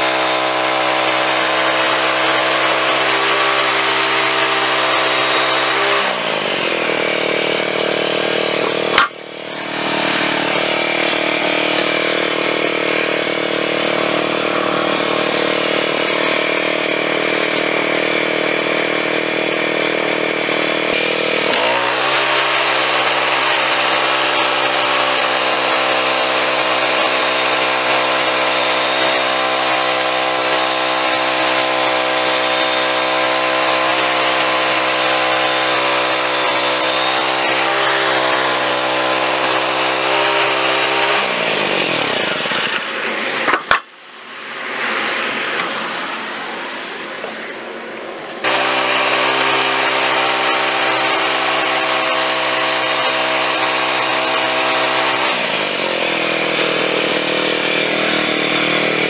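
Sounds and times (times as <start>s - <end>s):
band saw cutting log: 0.0s - 59.0s
sharp click: 8.9s - 9.2s.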